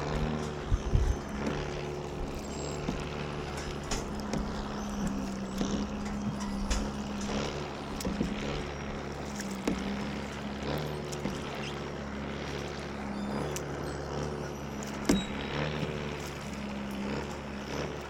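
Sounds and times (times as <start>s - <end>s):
motor hum: 0.0s - 18.0s
water splashes: 0.0s - 18.0s
paddle knocks: 1.3s - 11.8s.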